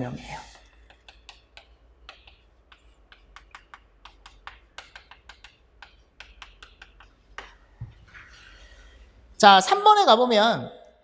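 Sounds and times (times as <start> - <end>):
chalk tapping on chalkboard: 0.3 - 8.0.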